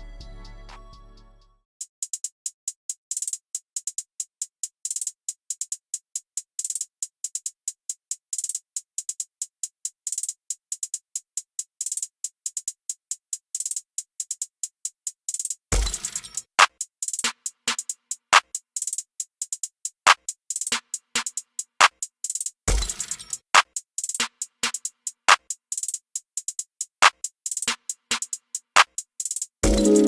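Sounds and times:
electronic drum-machine music: 15.8 - 16.3, 29.6 - 30.0.

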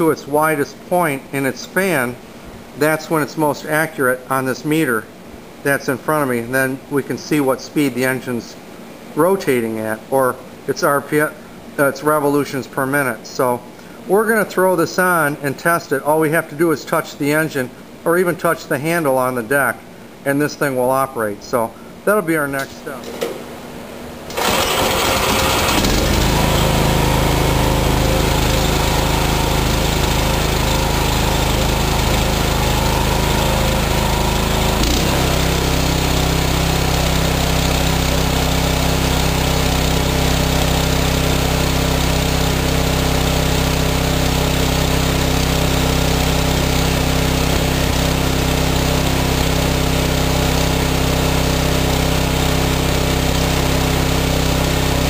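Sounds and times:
small engine running fast: 24.4 - 55.0.

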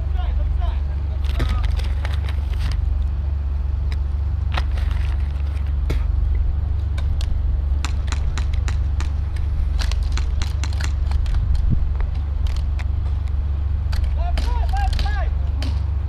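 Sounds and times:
low rumble: 0.0 - 16.0
pellets striking: 14.0 - 15.9.

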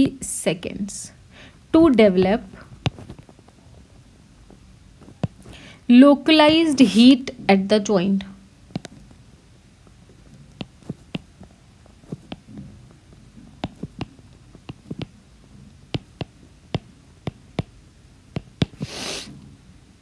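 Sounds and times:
stylus tapping on tablet screen: 2.0 - 3.4, 5.0 - 5.6, 8.7 - 9.2, 10.2 - 15.2, 15.9 - 19.0
short hiss: 18.8 - 19.4.

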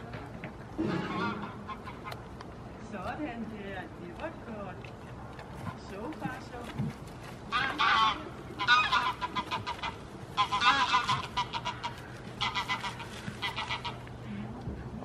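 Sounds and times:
chicken squawking: 7.5 - 14.1.

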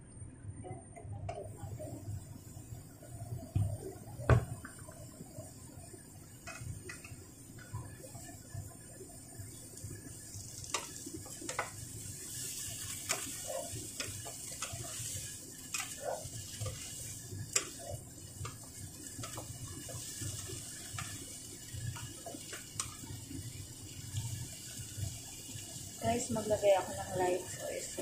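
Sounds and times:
boiling water hissing: 0.0 - 28.0
sharp pops and ticks: 6.4 - 8.1, 10.6 - 11.8, 17.4 - 23.3.

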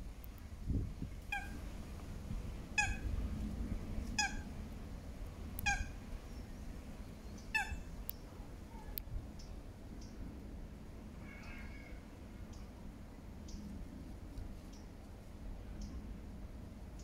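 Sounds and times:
low steady rumble: 0.0 - 17.0
animal calling: 2.8 - 3.1, 4.2 - 4.5, 5.6 - 6.0, 7.5 - 7.9.

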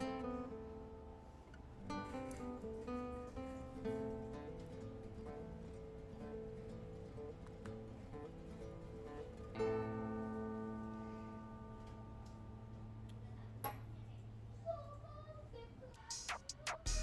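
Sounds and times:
short sharp clicks: 16.1 - 17.0.

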